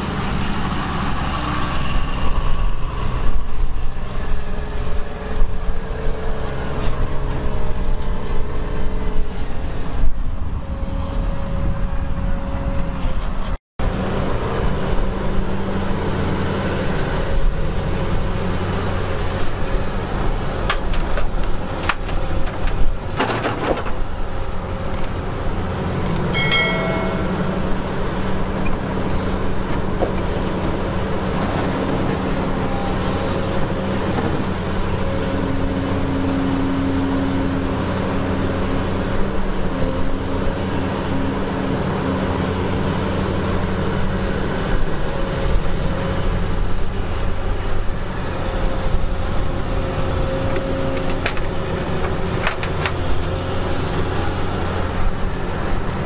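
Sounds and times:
deep diesel engine drone: 0:00.0 - 0:23.2, 0:24.0 - 0:56.0
higher engine tone: 0:24.8 - 0:29.9
short metallic ring: 0:26.3 - 0:27.7.

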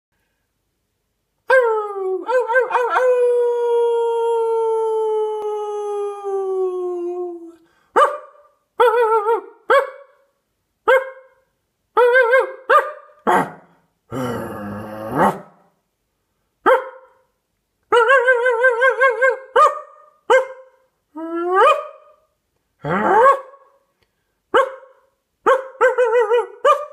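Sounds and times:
dog howling: 0:01.5 - 0:07.5
dog barking: 0:07.9 - 0:10.2, 0:10.9 - 0:11.4, 0:12.0 - 0:13.7, 0:16.6 - 0:17.3, 0:17.9 - 0:20.8, 0:21.6 - 0:22.2, 0:23.0 - 0:23.8, 0:24.5 - 0:26.9.

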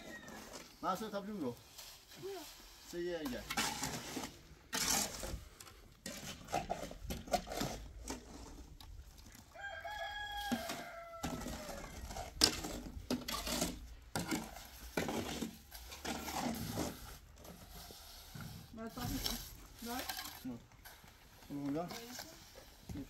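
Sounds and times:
rooster crowing: 0:09.5 - 0:12.1.

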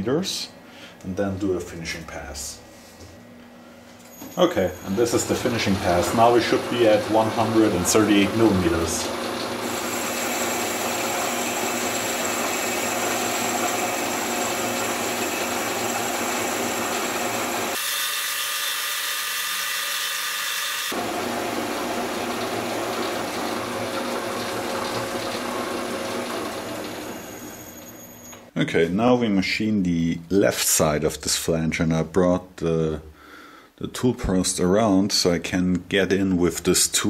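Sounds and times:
lathe hum and gear whine: 0:04.0 - 0:28.5.

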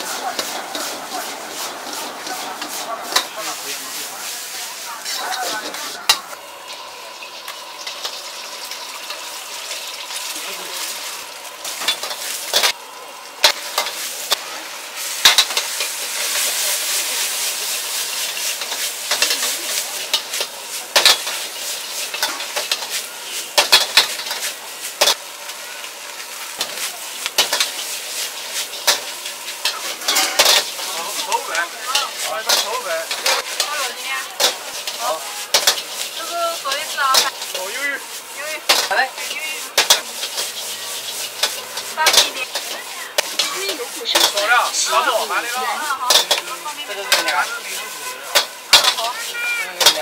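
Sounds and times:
noodles sizzling in a wok: 0:00.0 - 0:50.0
metal ladle clanking on wok: 0:28.7 - 0:30.9, 0:34.4 - 0:36.2, 0:46.1 - 0:47.5, 0:48.3 - 0:49.2.

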